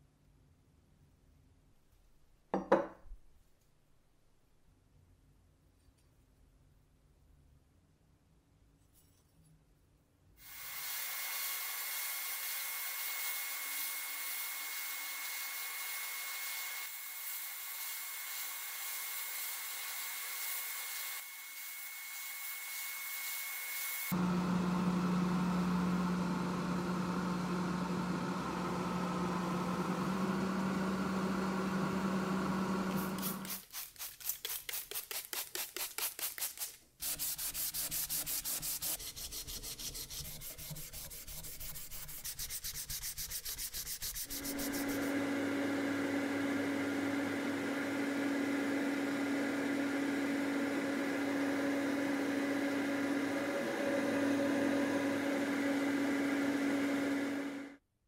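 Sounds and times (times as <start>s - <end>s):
electric paint sprayer running: 23.9s - 33.4s, 44.3s - 57.8s
hand sanding strokes: 33.0s - 45.3s.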